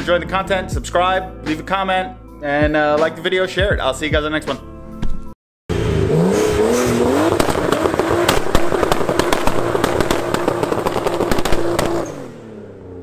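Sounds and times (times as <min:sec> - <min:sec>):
car engine revving: 0:05.7 - 0:13.0
rapid sharp crackles: 0:07.2 - 0:12.3.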